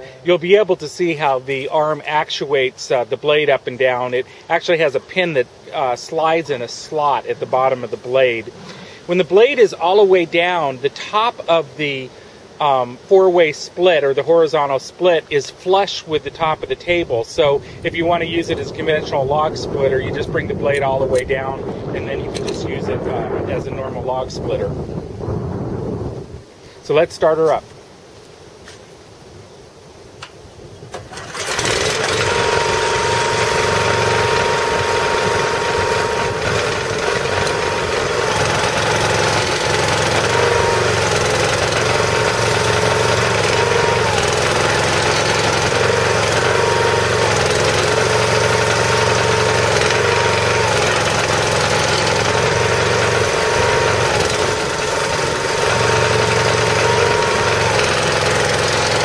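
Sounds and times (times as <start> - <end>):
small engine running: 31.1 - 59.0.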